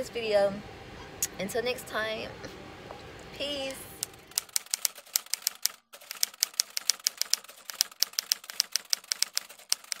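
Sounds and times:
typewriter key clicks: 4.3s - 10.0s.

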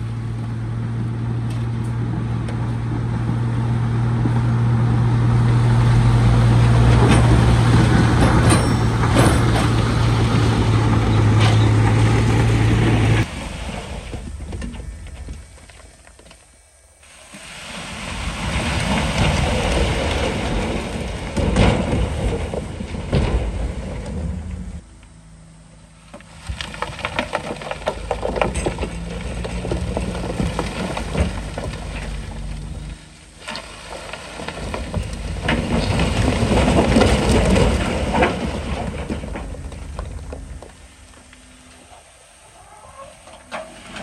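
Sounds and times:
diesel engine under load: 0.0s - 44.0s
tumbling clattering stone: 26.3s - 33.0s, 33.6s - 41.0s.

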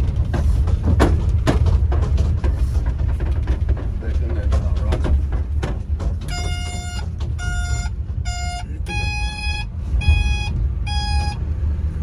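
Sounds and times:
low engine rumble: 0.0s - 12.0s
short electronic beeps: 7.4s - 11.4s.

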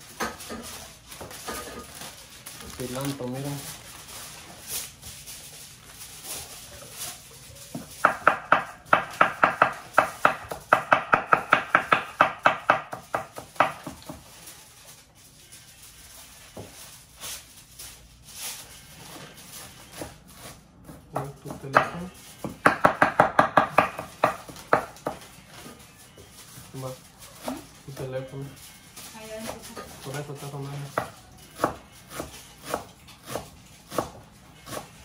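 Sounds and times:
knife chopping on wooden board: 7.8s - 14.3s, 20.8s - 25.2s, 30.9s - 34.9s.

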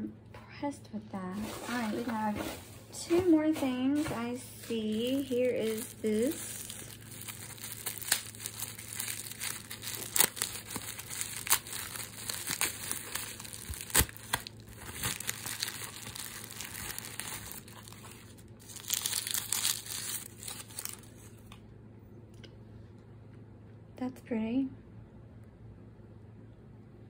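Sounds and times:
bubble wrap crinkling: 3.6s - 21.6s
wrapping paper crumpling: 4.0s - 21.5s.

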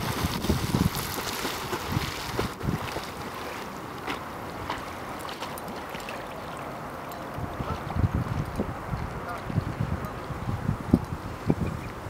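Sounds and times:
wind rumbling on microphone: 0.0s - 5.2s, 7.2s - 12.0s
dog paddling splashing water: 0.0s - 8.5s.

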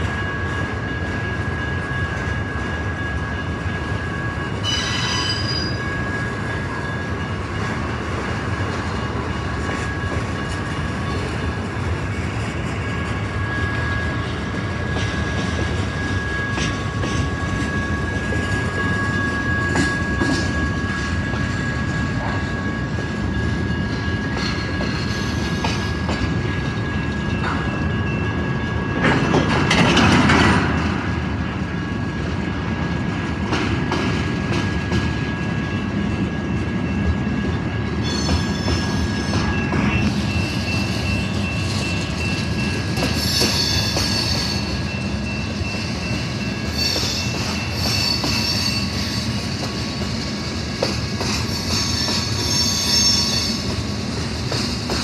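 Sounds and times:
freight train wheels clattering on rails: 0.0s - 55.0s
high-pitched wheel squealing: 37.7s - 49.5s, 51.2s - 53.8s.

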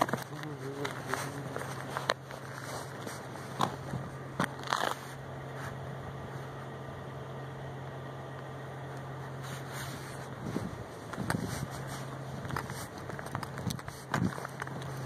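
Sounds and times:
sharp crunching clicks: 0.0s - 5.2s, 11.0s - 15.0s
steady low hum: 0.0s - 15.0s.

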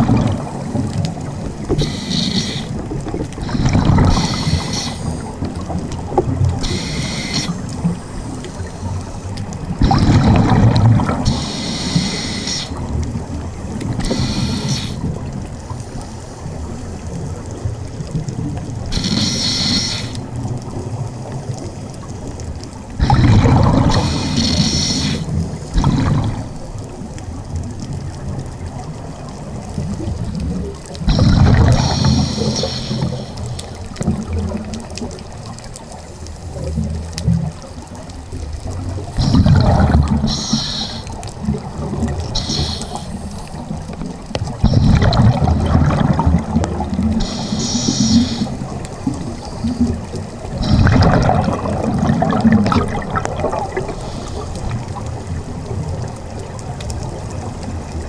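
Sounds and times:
gurgling exhaust bubbles: 0.0s - 4.6s, 9.6s - 11.5s, 23.0s - 24.9s, 25.5s - 26.6s, 30.0s - 33.0s, 38.7s - 40.6s, 43.6s - 57.5s
low underwater rumble: 0.0s - 58.0s
regulator breath hissing: 1.8s - 2.8s, 4.1s - 5.3s, 6.6s - 9.0s, 11.3s - 12.8s, 14.0s - 15.1s, 18.9s - 20.2s, 23.9s - 25.3s, 31.1s - 33.5s, 40.2s - 41.2s, 42.3s - 43.4s, 47.2s - 48.6s, 53.9s - 54.7s.

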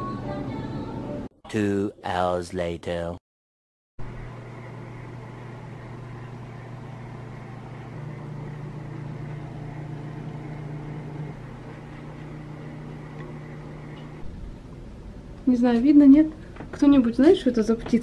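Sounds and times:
low mechanical hum: 4.0s - 18.0s.

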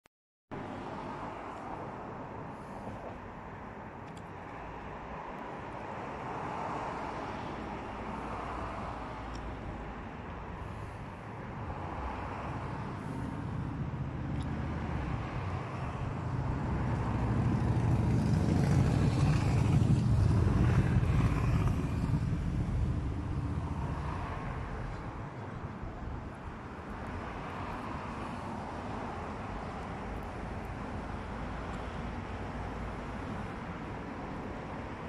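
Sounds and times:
road traffic rumble: 0.5s - 35.0s.

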